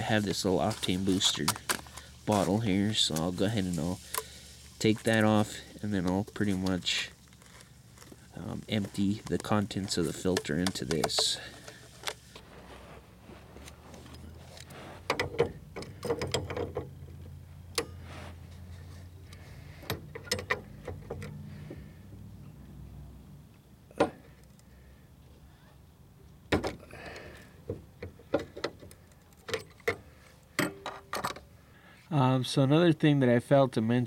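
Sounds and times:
metallic clicks and knocks of tools: 15.1s - 18.0s, 19.3s - 21.4s, 28.0s - 30.0s, 30.6s - 31.4s.

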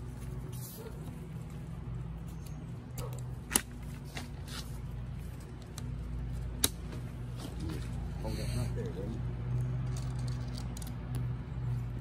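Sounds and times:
plastic tent clips clicking: 2.9s - 3.8s, 6.6s - 6.8s.

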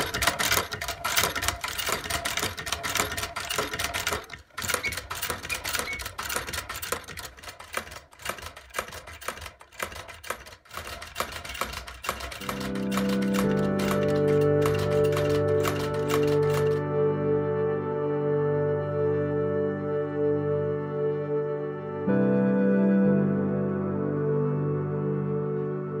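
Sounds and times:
sewing machine clattering: 0.0s - 16.8s.

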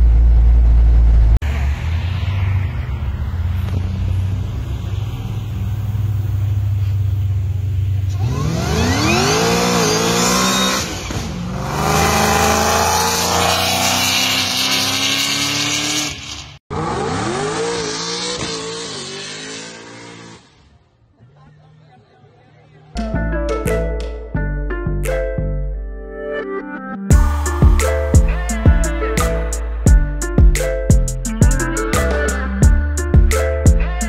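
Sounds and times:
car exhaust accelerating hard: 27.1s - 29.8s.

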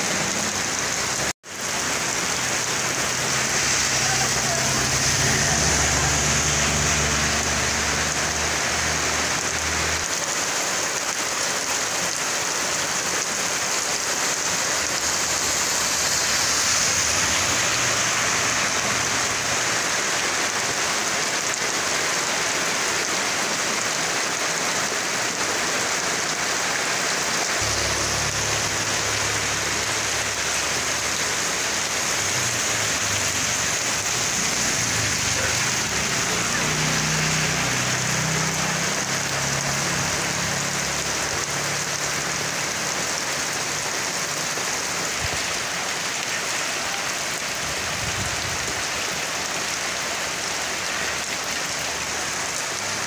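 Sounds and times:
heavy rain on asphalt: 0.0s - 53.0s.

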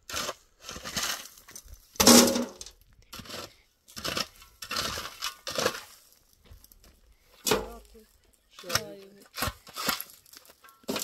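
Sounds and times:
hard objects clinking and scraping: 2.0s - 2.8s.

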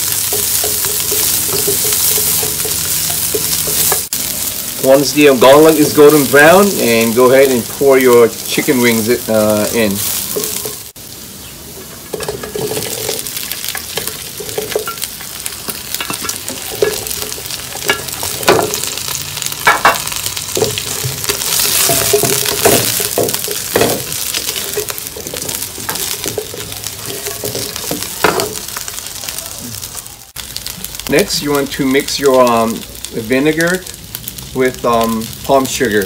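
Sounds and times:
spatula scraping and knocking pan: 0.0s - 4.1s, 9.9s - 10.9s, 11.8s - 29.0s
chicken sizzling in hot oil: 0.0s - 36.0s.

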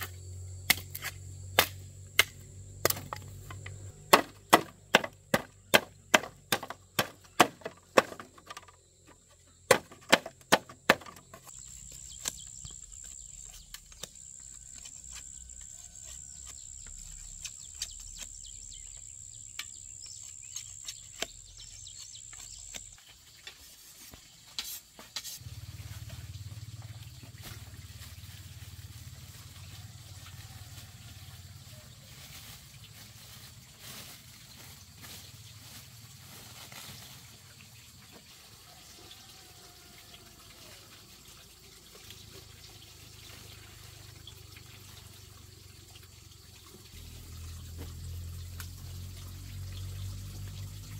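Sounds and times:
blade chopping into wood: 0.7s - 3.2s, 4.1s - 8.3s, 9.7s - 11.3s.

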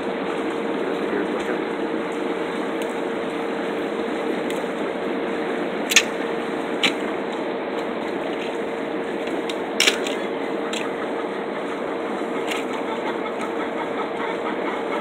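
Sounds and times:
low hum: 0.0s - 15.0s
sharp clicks or knocks: 5.9s - 6.2s.

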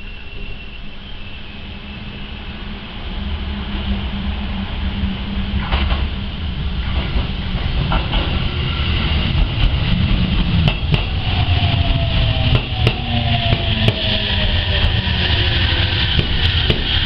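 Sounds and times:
train wheels rumbling on rail: 0.0s - 17.0s
traction motor whine falling: 10.6s - 17.0s.

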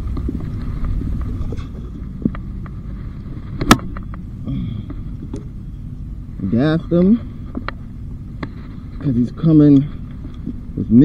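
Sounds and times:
wind rumble on microphone: 0.0s - 5.4s.

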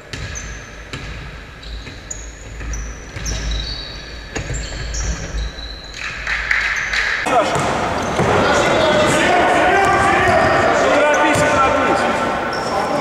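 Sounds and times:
basketball bouncing on gym floor: 0.0s - 5.5s, 7.3s - 9.2s, 9.8s - 11.8s
sneaker squeaks: 0.0s - 13.0s
thud of players running: 7.3s - 12.3s.

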